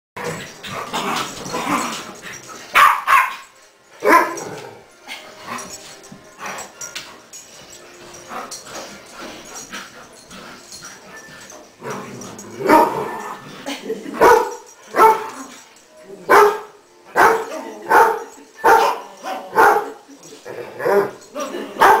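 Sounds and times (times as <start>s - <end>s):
dogs barking: 2.7s - 4.6s, 12.6s - 13.4s, 14.2s - 15.4s, 16.3s - 20.0s, 20.8s - 22.0s.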